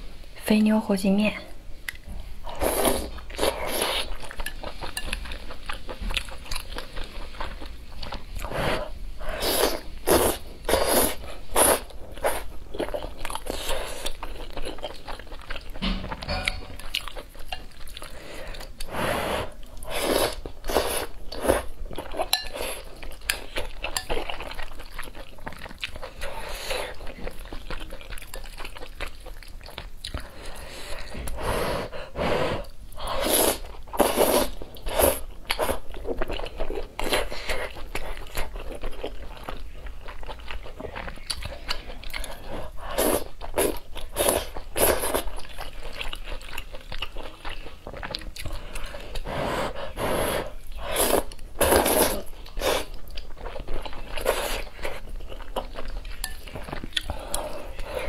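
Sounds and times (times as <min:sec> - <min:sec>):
wet chewing: 0:09.5 - 0:31.4, 0:33.4 - 0:49.9, 0:50.5 - 0:58.0
slurping noodles: 0:48.8 - 0:52.9.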